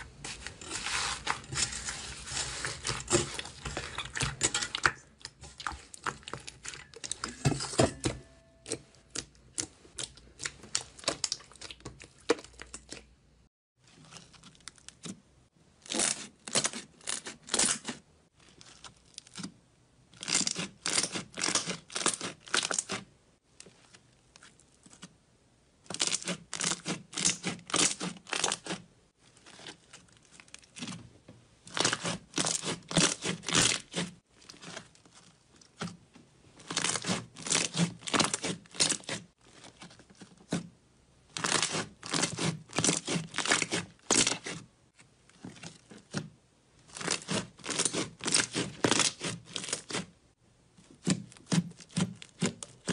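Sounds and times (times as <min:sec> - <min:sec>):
slime popping and crackling: 0:41.4 - 0:44.6, 0:46.9 - 0:50.0.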